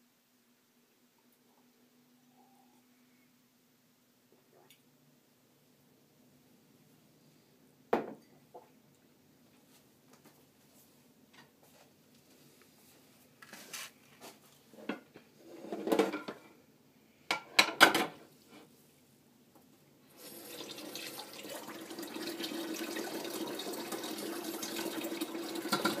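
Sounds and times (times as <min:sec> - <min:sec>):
running water: 0:20.1 - 0:26.0.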